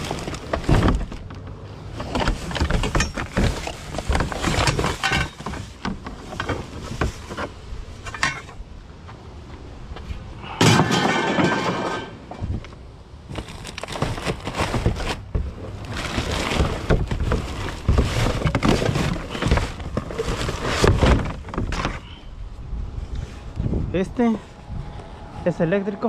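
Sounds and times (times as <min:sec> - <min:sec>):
plastic trash bag rustling: 0:00.0 - 0:01.3, 0:13.2 - 0:22.0.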